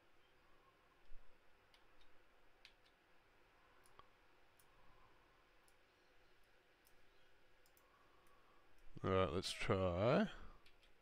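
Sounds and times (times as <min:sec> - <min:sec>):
faint computer mouse clicks: 0:01.0 - 0:03.0, 0:05.6 - 0:05.8, 0:06.4 - 0:07.0, 0:07.6 - 0:08.9.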